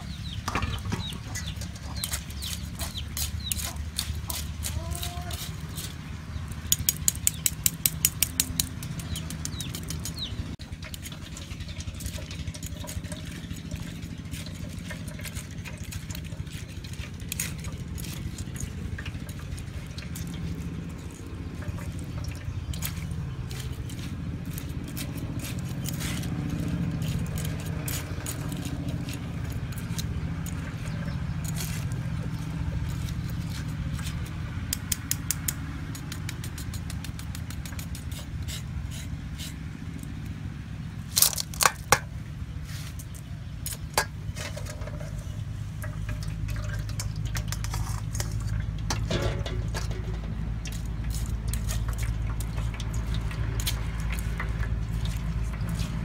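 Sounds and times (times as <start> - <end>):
low engine hum: 0.0 - 56.0
scraping and clicking in sieve: 0.2 - 40.4, 42.6 - 56.0
metal ladle tapping wire sieve: 43.1 - 55.9.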